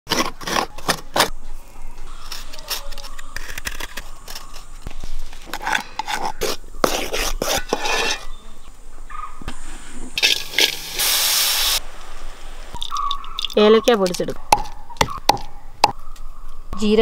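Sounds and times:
spoon scraping flour in steel tin: 0:05.6 - 0:08.4.

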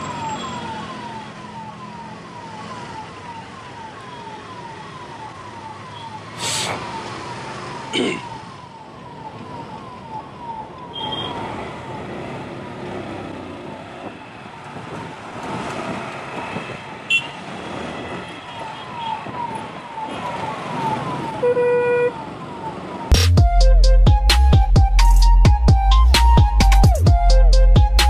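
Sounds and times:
ambulance siren short sweeps: 0:00.0 - 0:12.2, 0:18.0 - 0:28.0
traffic noise: 0:00.0 - 0:23.9.

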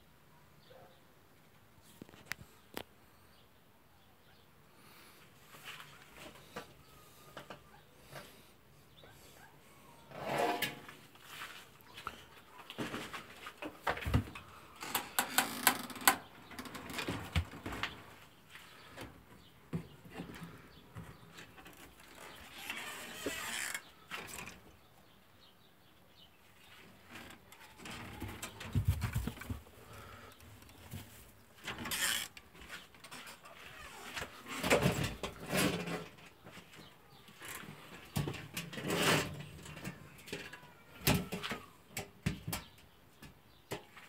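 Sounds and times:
rustle: 0:10.2 - 0:13.7
wooden hutches knocking and creaking: 0:11.9 - 0:18.2, 0:27.0 - 0:44.0.

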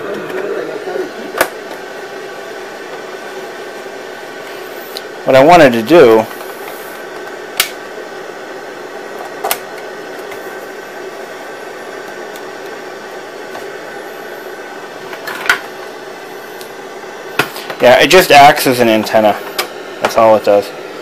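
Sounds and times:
tv static hiss: 0:00.0 - 0:21.0.

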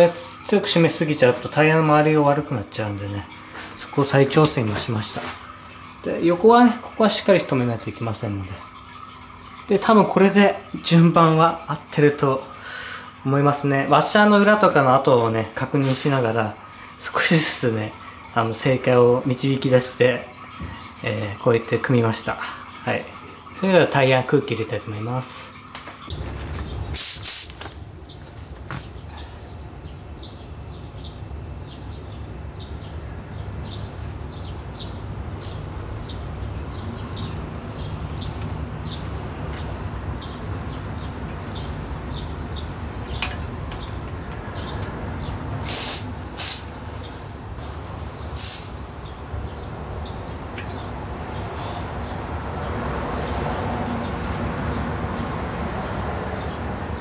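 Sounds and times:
air hissing at tyre valve: 0:27.0 - 0:27.6, 0:45.6 - 0:46.7, 0:48.4 - 0:48.9.

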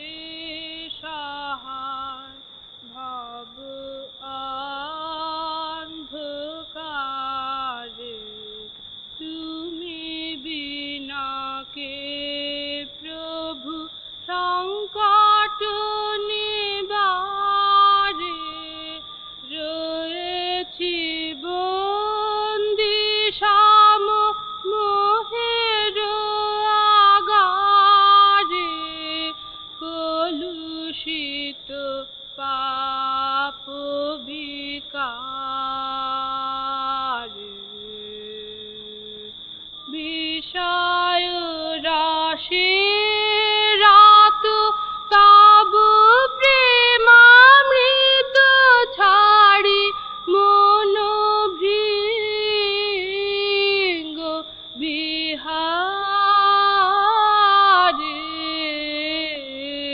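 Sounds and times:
faint high-pitched whine: 0:00.0 - 0:59.9
boy singing: 0:39.9 - 0:59.9.

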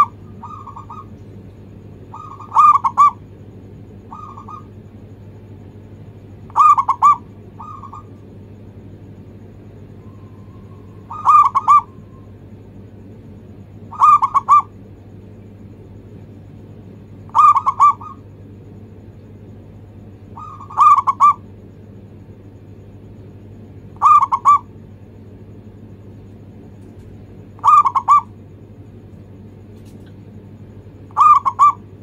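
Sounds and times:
dove cooing: 0:00.0 - 0:01.3, 0:02.0 - 0:04.9, 0:06.4 - 0:08.3, 0:09.9 - 0:12.4, 0:13.8 - 0:14.8, 0:17.2 - 0:18.3, 0:20.2 - 0:21.5, 0:23.8 - 0:24.8, 0:27.0 - 0:28.5, 0:30.9 - 0:32.0.

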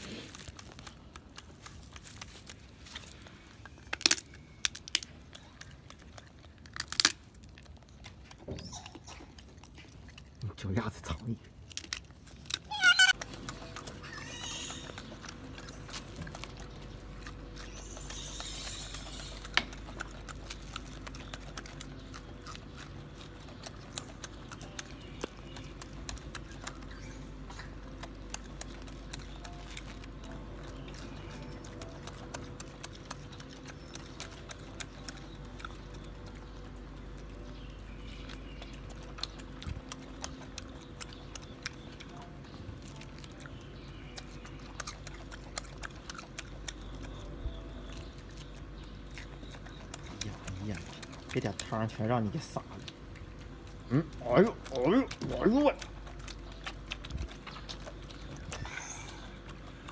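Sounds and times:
monkeys eating clicks and taps: 0:00.0 - 0:59.9.

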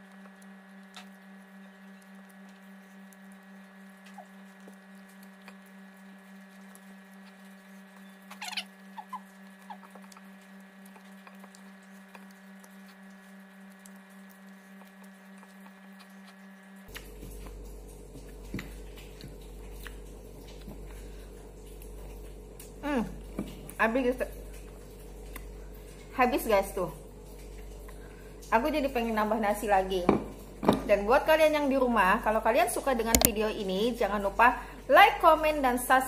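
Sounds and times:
steady low hum: 0:00.0 - 0:36.0
squeaky chirp: 0:08.0 - 0:09.9.

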